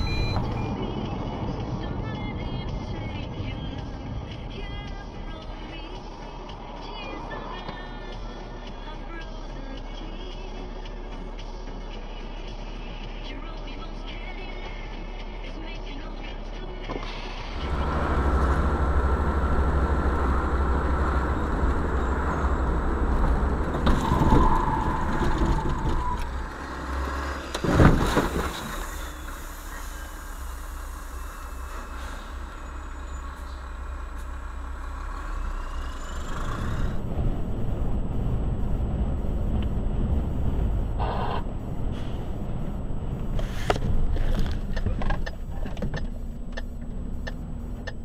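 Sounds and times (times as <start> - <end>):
car road and engine noise: 0.0 - 48.0
steady vehicle drone: 0.0 - 48.0
loud car crash: 21.4 - 36.2.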